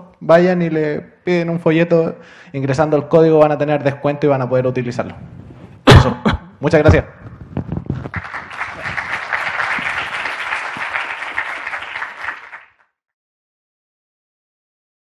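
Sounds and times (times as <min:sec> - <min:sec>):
audience applauding: 0:08.0 - 0:12.8.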